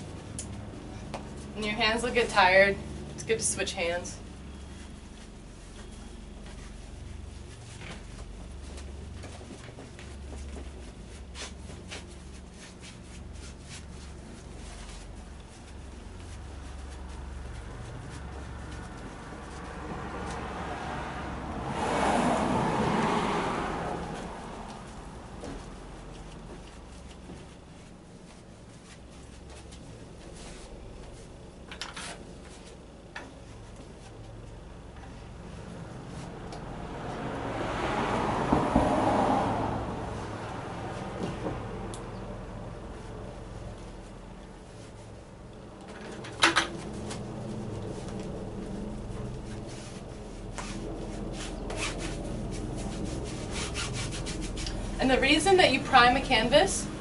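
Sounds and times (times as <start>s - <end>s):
low steady hum: 0.0s - 21.8s, 23.8s - 37.2s
scratchy brush strokes on canvas: 0.0s - 38.1s, 46.8s - 57.0s.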